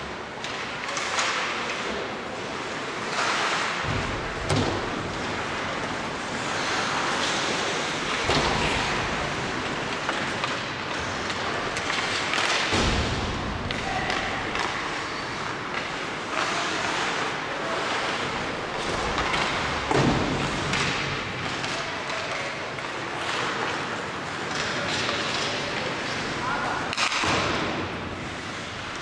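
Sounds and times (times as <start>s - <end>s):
skates scraping on ice: 0.3s - 29.0s
stick and puck clacks: 0.3s - 29.0s
loud thud: 12.7s - 13.7s.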